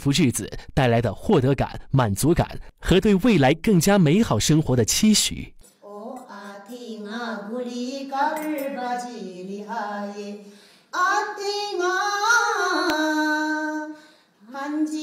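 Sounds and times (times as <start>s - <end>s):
woman singing unaccompanied: 5.8s - 15.0s.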